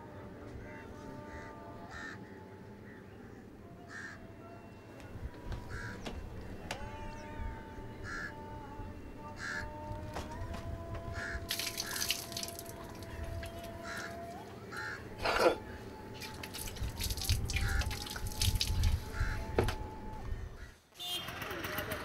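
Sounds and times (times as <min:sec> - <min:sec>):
crows cawing: 0:01.3 - 0:03.0, 0:03.9 - 0:04.2, 0:05.7 - 0:06.0, 0:08.0 - 0:08.4, 0:09.4 - 0:09.7, 0:11.2 - 0:15.4, 0:17.5 - 0:18.2, 0:19.1 - 0:19.4
water splashing onto wet floor: 0:11.5 - 0:14.1, 0:16.2 - 0:19.0.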